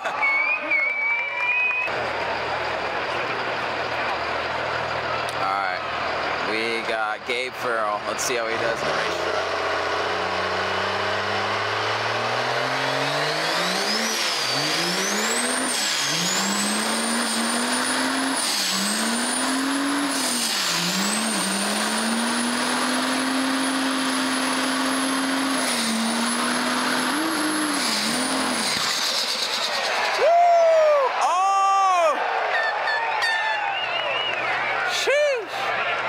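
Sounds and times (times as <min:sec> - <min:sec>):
high whistle: 0:00.1 - 0:01.9, 0:32.5 - 0:34.7
diesel truck engine revving: 0:01.0 - 0:31.0.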